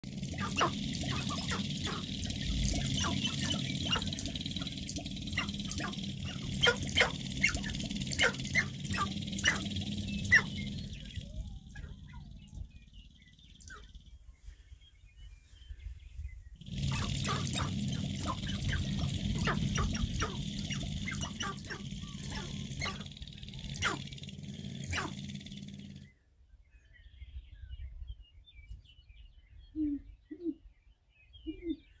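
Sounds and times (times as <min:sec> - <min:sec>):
grouse sharp calls: 0:00.0 - 0:12.6, 0:16.6 - 0:25.8.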